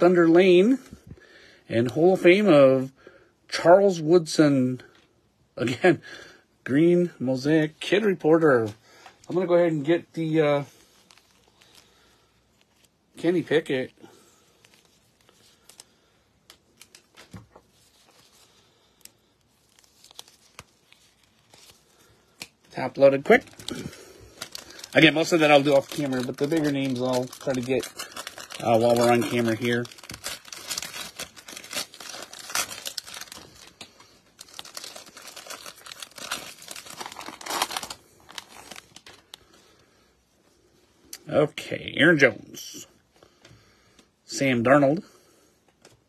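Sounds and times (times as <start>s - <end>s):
packaging tearing and crinkling: 19.0s - 39.4s.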